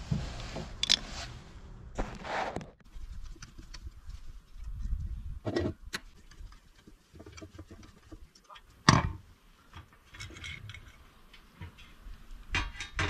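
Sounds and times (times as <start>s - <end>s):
small metal clicks and knocks: 9.7s - 13.0s.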